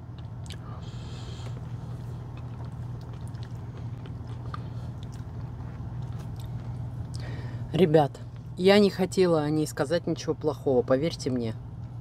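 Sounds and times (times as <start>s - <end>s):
low hum in truck cab: 0.0s - 12.0s
close chewing: 0.1s - 7.3s.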